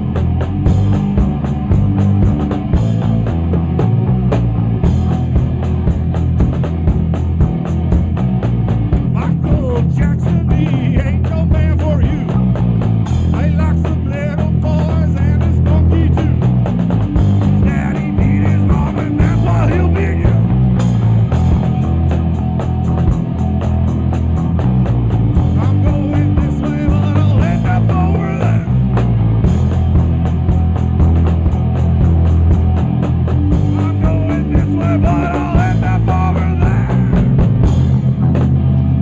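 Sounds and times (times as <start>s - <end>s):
bass guitar: 0.0s - 39.0s
drum kit beat: 0.0s - 39.0s
electric guitar: 0.0s - 39.0s.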